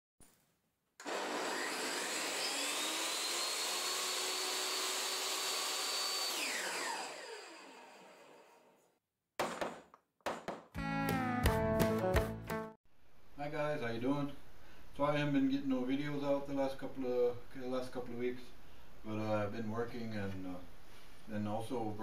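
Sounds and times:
electric power saw motor whining: 1.0s - 8.7s.

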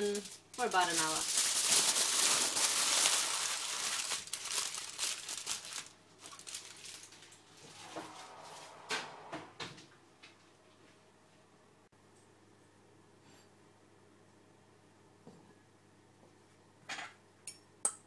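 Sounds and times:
aluminium foil crinkling: 0.0s - 7.6s.

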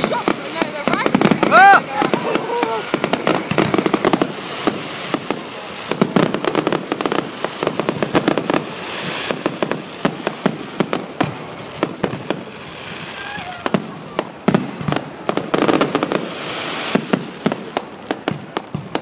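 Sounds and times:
fireworks bangs and crackles: 0.0s - 19.0s.

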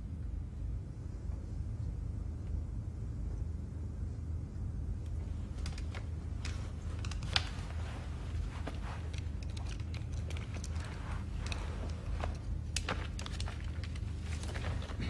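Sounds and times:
low rumble of room tone: 0.0s - 15.0s
clicks and rustles of handling: 5.0s - 15.0s.

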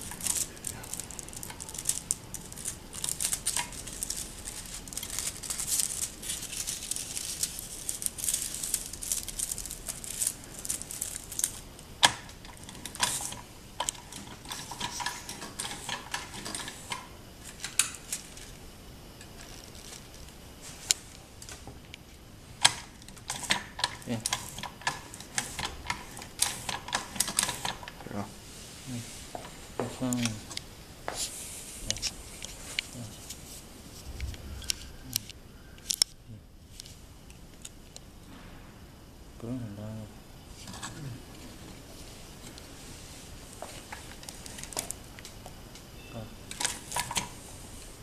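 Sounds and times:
foil crinkling: 0.0s - 18.6s, 19.2s - 21.7s, 41.5s - 45.4s
machine metal clicks: 22.6s - 28.0s.

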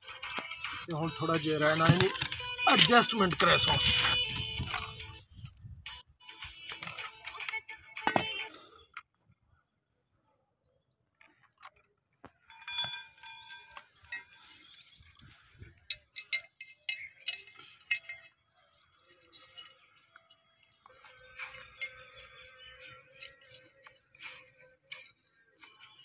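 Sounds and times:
plastic parts clicking: 1.7s - 5.1s.

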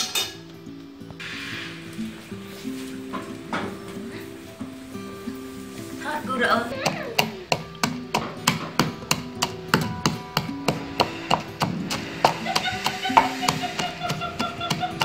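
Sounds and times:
wooden pestle pounding in mortar: 6.8s - 15.0s.

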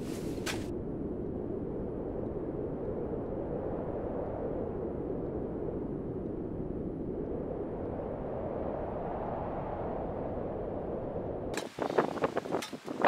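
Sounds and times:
wind rumbling on microphone: 0.0s - 13.0s.

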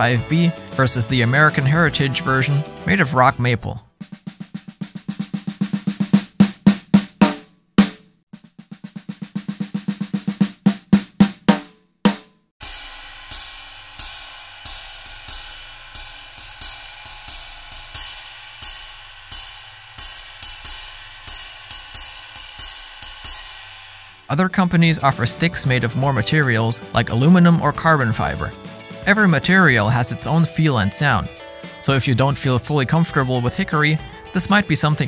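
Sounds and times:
snare drum hits: 4.5s - 8.0s
ride cymbal ringing strokes: 12.6s - 24.3s.

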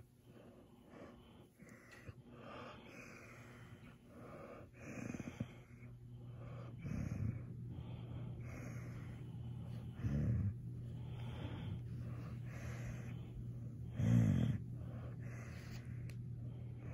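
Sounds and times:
puppy breathing heavily: 0.0s - 16.9s
puppy groaning: 13.8s - 15.4s.

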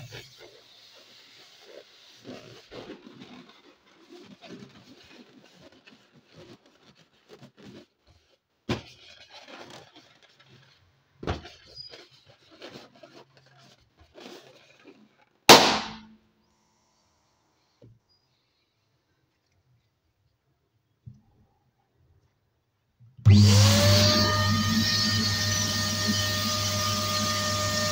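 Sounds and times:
balloon squeaking and rustling: 0.0s - 15.4s
balloon bursting pop: 15.5s - 16.1s.

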